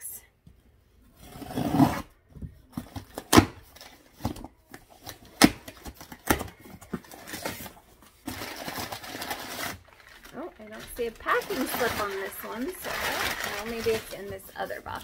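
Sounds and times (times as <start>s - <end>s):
cardboard rustling: 2.4s - 15.0s
cardboard scraping rustle: 7.0s - 15.0s.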